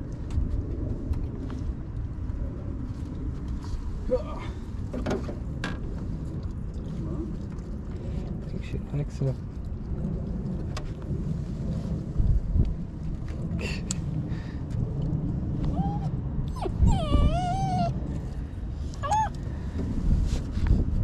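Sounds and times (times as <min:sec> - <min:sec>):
wind rumble on microphone: 0:00.0 - 0:21.0
dog whining: 0:15.7 - 0:18.0, 0:19.0 - 0:19.4.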